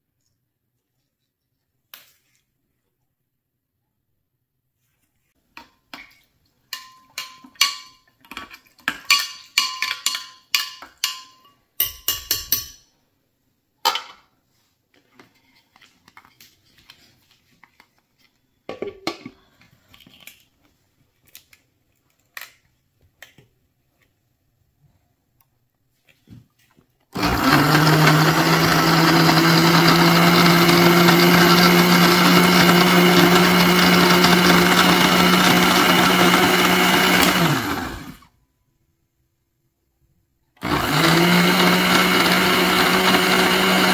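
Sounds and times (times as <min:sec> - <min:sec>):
spoon tapping a glass jar: 0:09.6 - 0:12.8
objects knocked on a countertop: 0:18.7 - 0:19.4.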